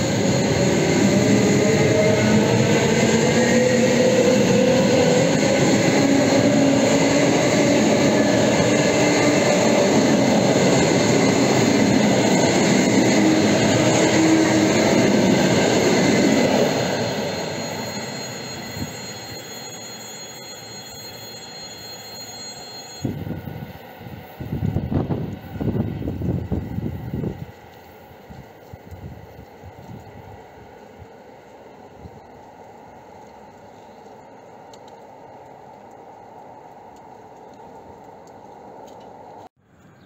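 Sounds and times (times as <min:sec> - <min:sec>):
traction motor whine: 0:00.0 - 0:23.6
distant train: 0:00.0 - 0:40.0
train wheels on rails: 0:00.0 - 0:40.0.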